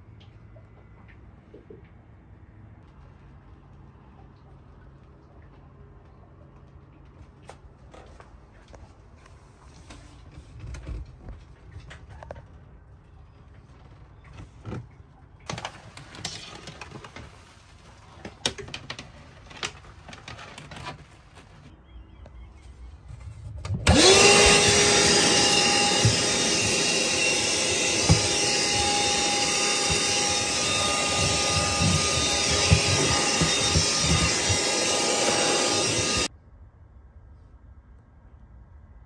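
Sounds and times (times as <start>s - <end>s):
hand vacuum motor running: 23.8s - 36.3s.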